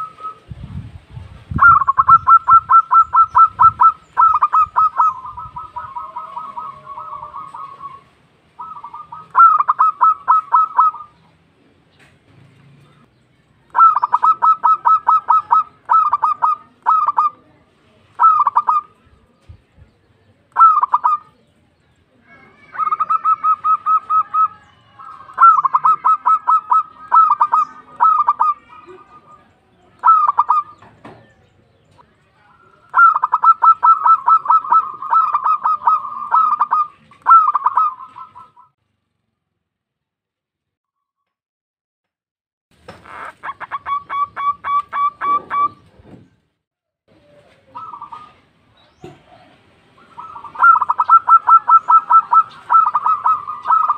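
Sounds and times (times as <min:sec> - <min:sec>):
dove cooing: 0:00.0 - 0:00.5, 0:01.5 - 0:11.3, 0:13.7 - 0:19.0, 0:20.6 - 0:21.5, 0:22.4 - 0:32.0, 0:32.6 - 0:38.8, 0:43.0 - 0:45.9, 0:47.2 - 0:53.9.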